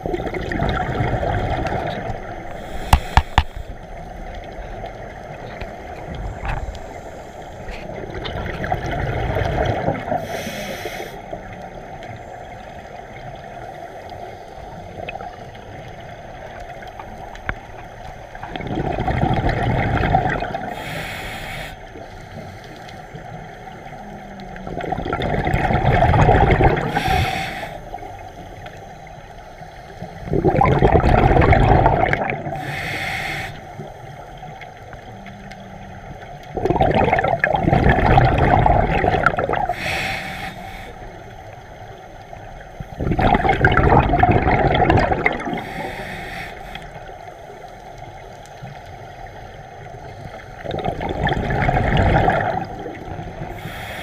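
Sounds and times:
exhaled bubbles rushing: 0.0s - 10.4s, 18.3s - 20.9s, 23.1s - 27.3s, 30.2s - 32.8s, 34.1s - 40.0s, 42.3s - 45.9s, 50.4s - 53.8s
high regulator hiss: 2.4s - 4.1s, 10.2s - 11.3s, 20.7s - 23.2s, 26.8s - 30.3s, 32.6s - 34.9s, 39.6s - 43.0s, 45.5s - 48.3s, 53.5s - 54.0s.

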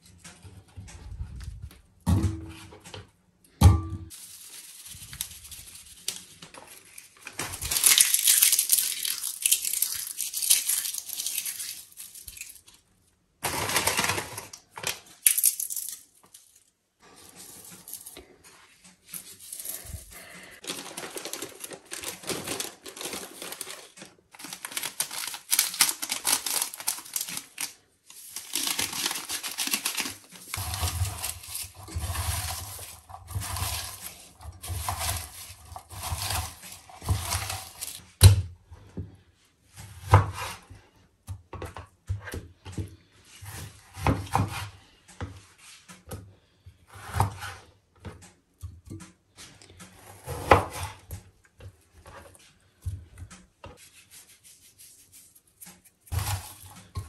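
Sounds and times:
plastic packets crinkling: 4.1s - 12.8s, 13.4s - 16.6s, 19.2s - 38.0s, 56.0s - 57.0s
hands mixing onion in pot: 17.0s - 38.2s, 48.7s - 57.0s.

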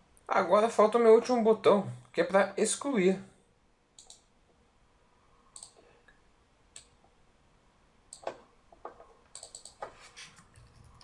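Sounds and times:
computer mouse clicks: 4.0s - 4.3s, 5.5s - 5.9s, 6.7s - 7.0s, 8.1s - 11.0s.

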